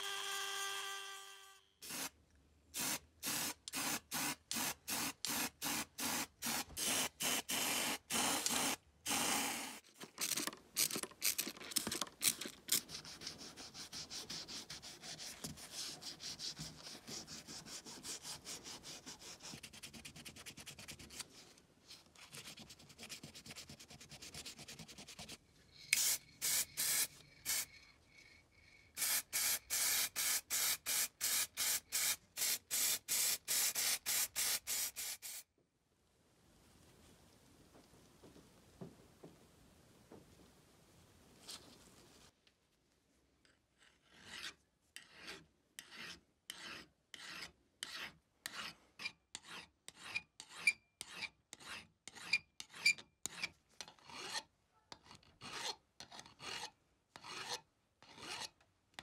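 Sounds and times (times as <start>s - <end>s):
spray can hissing bursts: 1.8s - 2.1s, 2.8s - 9.8s, 25.9s - 27.7s, 29.0s - 35.5s.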